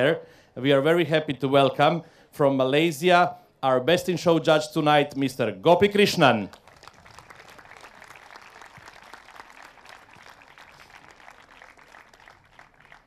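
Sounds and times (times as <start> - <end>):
applause: 6.2 - 13.0.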